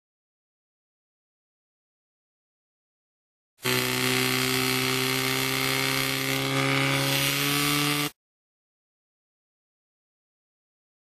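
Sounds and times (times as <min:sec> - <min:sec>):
pump engine running at high revs: 0:03.6 - 0:08.1.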